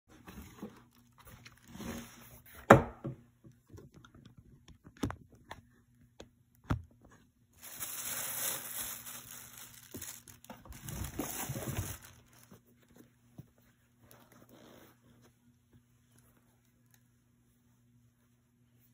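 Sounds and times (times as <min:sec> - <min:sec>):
paper rustling and crinkling: 0:07.6 - 0:13.2
cardboard box being opened: 0:09.2 - 0:12.6.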